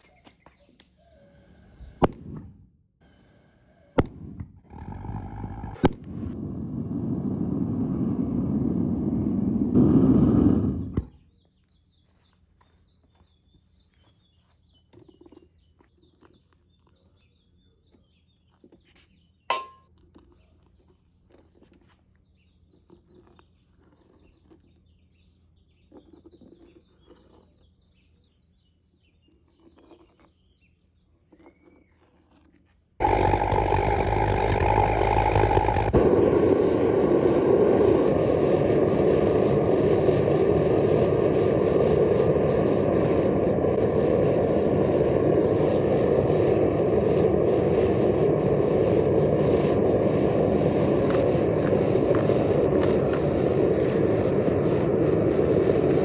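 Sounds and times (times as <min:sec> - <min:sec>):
furnace burner rushing: 0:04.7 - 0:11.0, 0:33.0 - 0:56.0
spoon scraping in crucible: 0:29.3 - 0:30.5.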